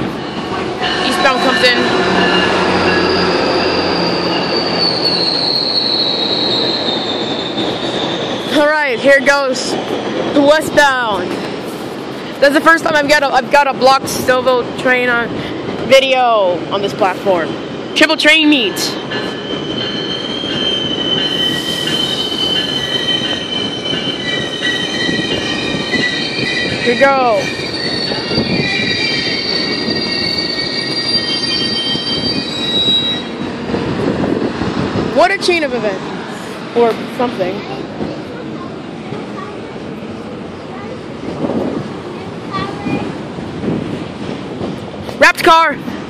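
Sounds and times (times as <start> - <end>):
train wheels rumbling on rails: 0.0 - 46.0
high wheel squeal: 0.2 - 10.2, 18.8 - 33.4.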